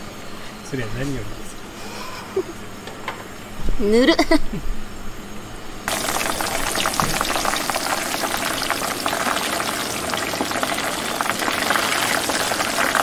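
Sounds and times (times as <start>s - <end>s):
chicken wings sizzling in oil: 5.9s - 13.0s.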